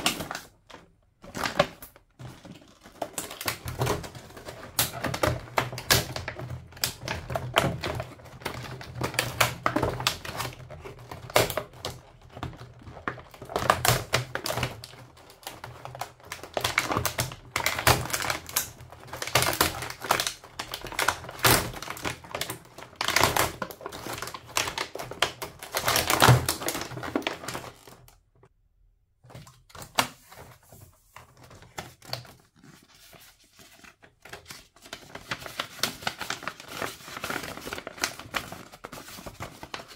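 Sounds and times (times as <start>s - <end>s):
paper bag handled: 30.2s - 39.9s.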